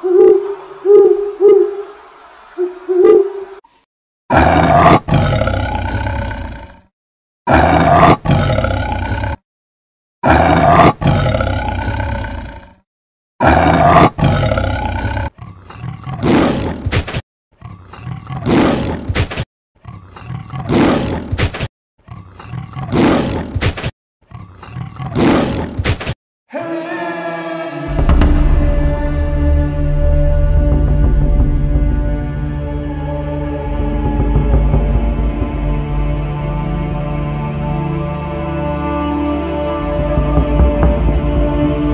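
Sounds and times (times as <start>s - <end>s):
tiger roaring: 4.3s - 6.8s, 7.5s - 9.4s, 10.2s - 12.8s, 13.4s - 16.8s.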